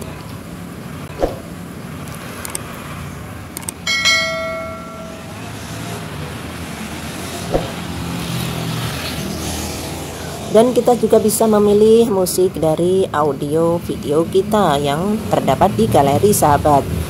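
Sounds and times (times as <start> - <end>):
bell-like chime: 3.9 - 5.6.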